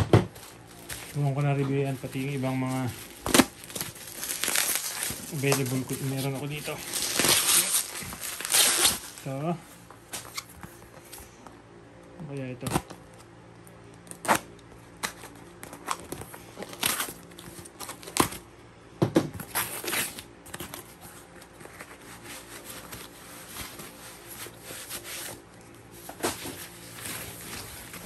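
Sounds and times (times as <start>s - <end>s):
foam wrap rustling: 0.3s - 11.1s, 19.4s - 28.0s
packing tape and wrapping ripping: 0.4s - 9.4s, 14.1s - 18.4s, 19.5s - 20.9s.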